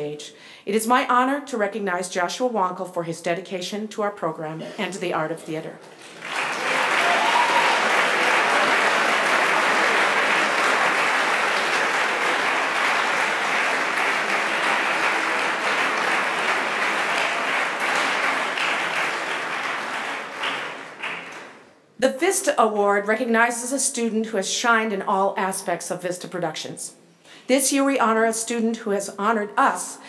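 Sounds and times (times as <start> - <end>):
audience applauding: 5.9 - 21.7.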